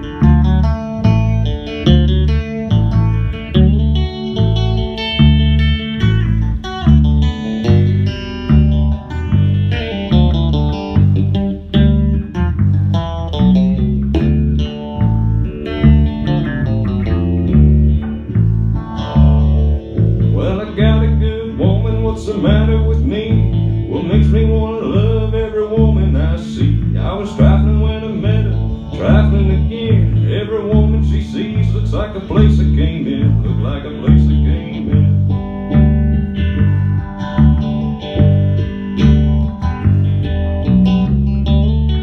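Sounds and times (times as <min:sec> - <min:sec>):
electric bass line: 0:00.0 - 0:42.0
electric guitar lead: 0:00.0 - 0:42.0.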